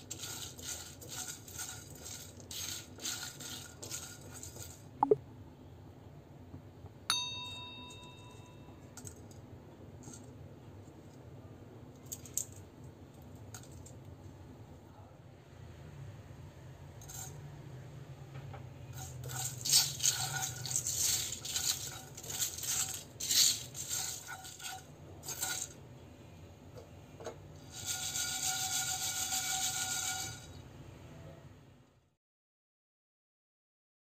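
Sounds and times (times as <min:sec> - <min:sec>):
seeds rattling in shaken pan: 0:00.0 - 0:04.9, 0:19.0 - 0:25.8, 0:27.6 - 0:30.5
spatula scraping spices in pan: 0:00.0 - 0:04.9, 0:17.0 - 0:17.4, 0:18.9 - 0:25.8, 0:26.8 - 0:30.6.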